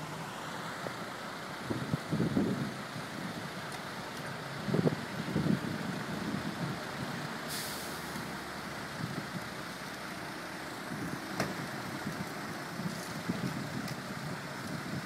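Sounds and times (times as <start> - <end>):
engines idling in traffic: 0.0 - 15.0
short hiss: 7.5 - 8.2.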